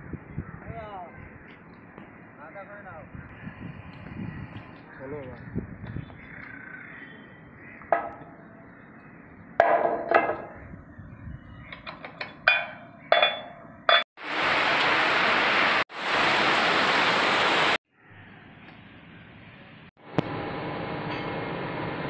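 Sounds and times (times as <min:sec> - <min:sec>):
hammer striking metal bolts: 0:07.9 - 0:08.4, 0:09.6 - 0:10.6, 0:11.7 - 0:14.0
heavy rain hissing: 0:14.2 - 0:17.8.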